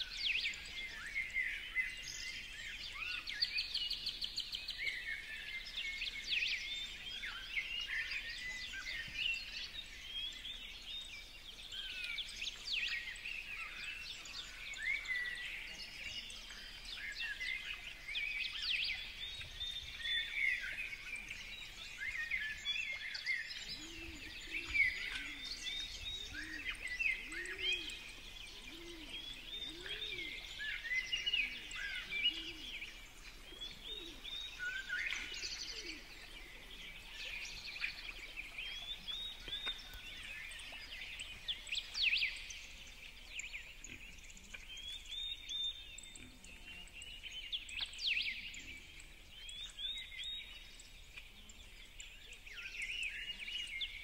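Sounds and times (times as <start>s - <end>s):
songbirds chirping and trilling: 0.0s - 54.0s
pigeon cooing: 28.6s - 30.4s.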